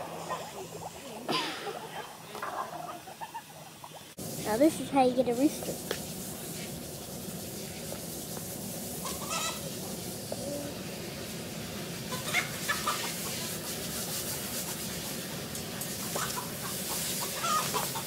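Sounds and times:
chickens clucking: 0.0s - 4.2s, 9.0s - 10.9s, 12.0s - 18.0s
chicken squawks: 1.9s - 4.1s, 9.0s - 9.8s, 12.1s - 13.6s, 16.0s - 18.0s.

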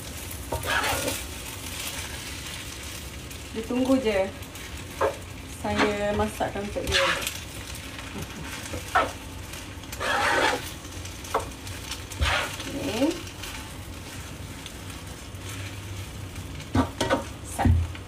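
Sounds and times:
faint sizzle: 0.0s - 18.0s
metal spatula scraping a wok: 0.5s - 1.3s, 5.0s - 6.1s, 6.8s - 7.4s, 8.7s - 9.2s, 9.9s - 10.8s, 12.1s - 13.0s.

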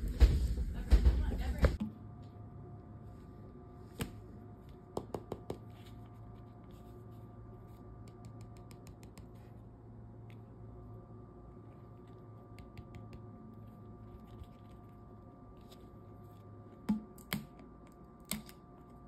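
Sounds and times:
steady low hum: 0.0s - 19.0s
fingers tapping plastic toy ball: 8.1s - 9.3s.

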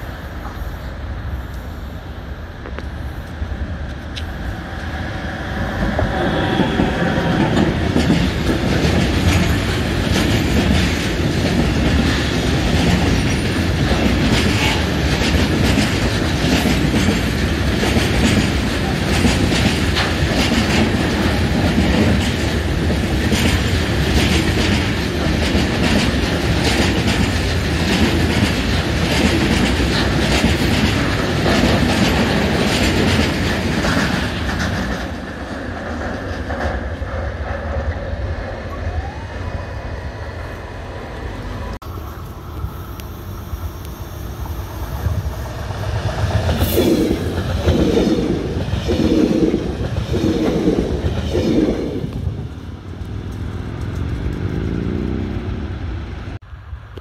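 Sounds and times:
electric locomotive passing: 0.0s - 57.0s
wheels clacking over rail joints: 5.7s - 38.0s.

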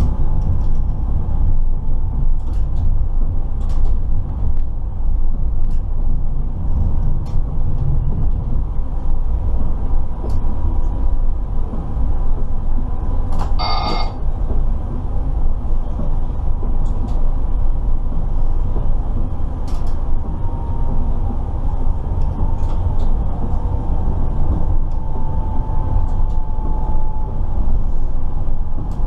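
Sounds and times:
tram running rumble: 0.0s - 29.0s
short ringing tone: 13.6s - 14.2s.

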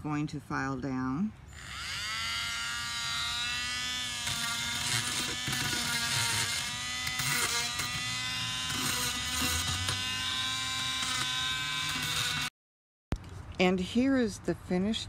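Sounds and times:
rotary tool motor whine: 1.5s - 12.5s.

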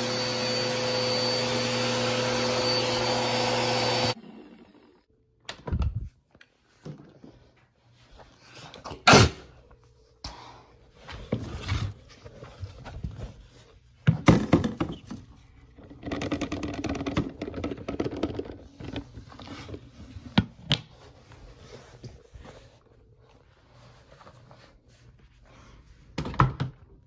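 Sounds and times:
objects knocking and scraping: 14.0s - 20.8s.

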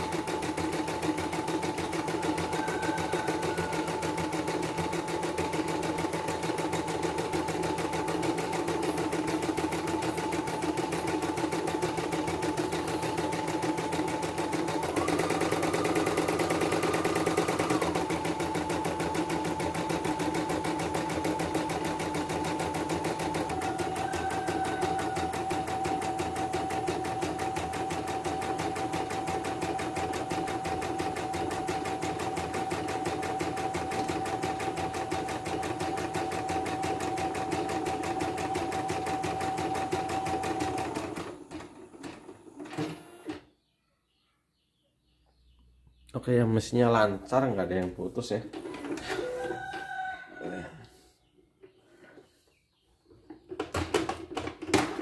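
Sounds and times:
embroidery machine stitching: 0.0s - 43.4s.

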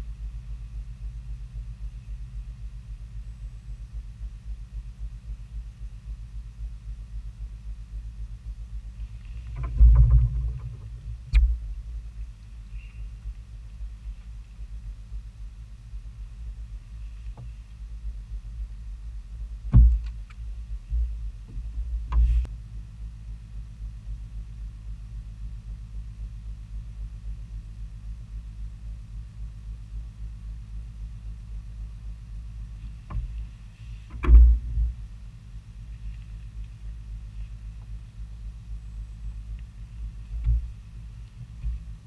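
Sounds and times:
low rumble on a boat: 0.0s - 42.0s
knocks against a boat: 9.5s - 11.6s, 19.7s - 20.2s, 33.1s - 33.4s, 34.1s - 35.0s, 40.4s - 40.8s.

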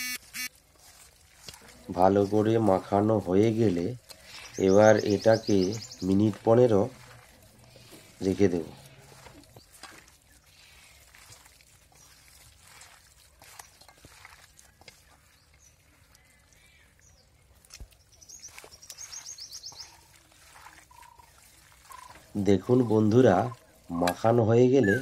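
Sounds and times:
wet squelching of hands mixing meat: 0.0s - 25.0s
bird chirps: 4.2s - 6.2s, 18.0s - 20.2s, 24.8s - 25.0s.

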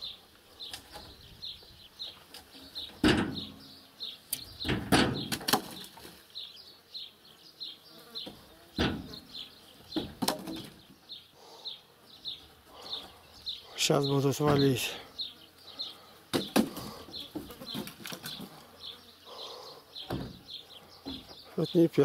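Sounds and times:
wooden poles thudding on heap: 2.4s - 3.6s, 4.6s - 6.2s, 9.8s - 11.0s, 16.3s - 18.6s, 20.0s - 21.3s.

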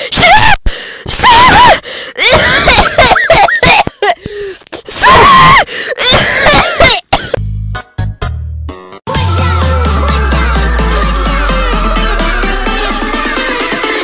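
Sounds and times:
child squealing and wailing: 0.2s - 2.8s, 4.9s - 7.1s.

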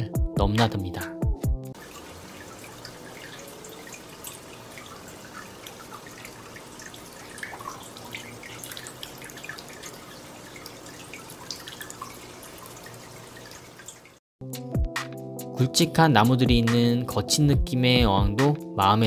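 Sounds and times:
small drips and splashes: 1.7s - 14.2s
water trickling in aquarium: 1.8s - 14.2s.

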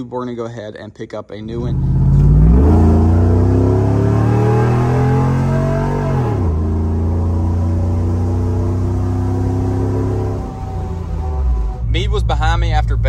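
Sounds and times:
engine revving while driving: 1.5s - 13.0s.

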